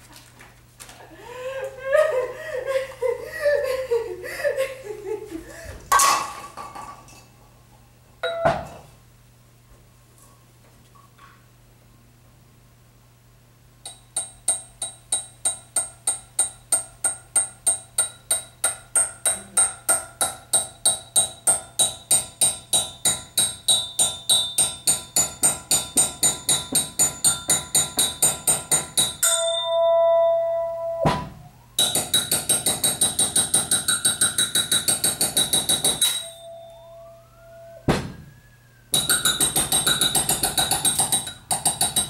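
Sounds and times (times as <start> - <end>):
held ringing tone: 8.2 - 8.6, 29.2 - 31.1, 36.0 - 37.9.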